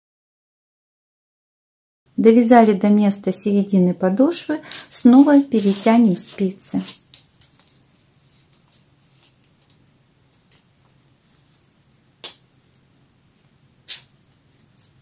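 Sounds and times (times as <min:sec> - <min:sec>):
knitting handling: 0:04.7 - 0:11.6.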